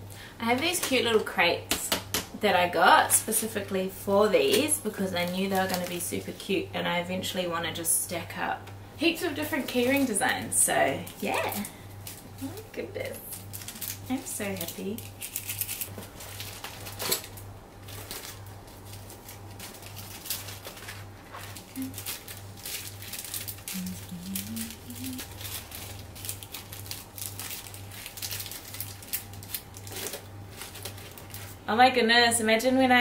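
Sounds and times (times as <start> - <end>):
rustling of paper cards: 4.4 - 6.4, 13.1 - 31.7.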